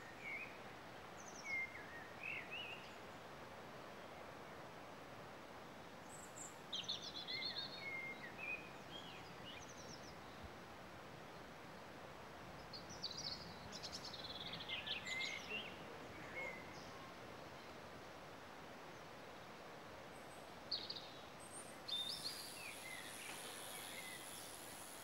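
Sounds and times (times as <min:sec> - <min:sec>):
faint background hiss: 0:00.0 - 0:25.0
songbird singing trills: 0:20.7 - 0:25.0.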